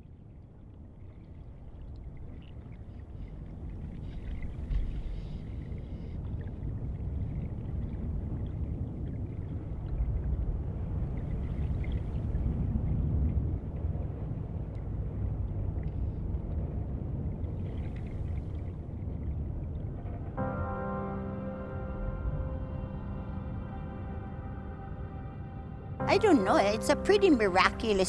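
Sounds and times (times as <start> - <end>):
faint crackle: 0.0 - 23.6
low rumbling noise: 0.8 - 28.0.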